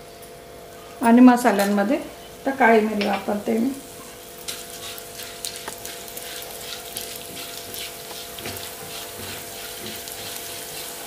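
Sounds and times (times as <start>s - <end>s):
spices sizzling in hot oil: 1.4s - 11.0s
spatula stirring in pan: 4.0s - 11.0s.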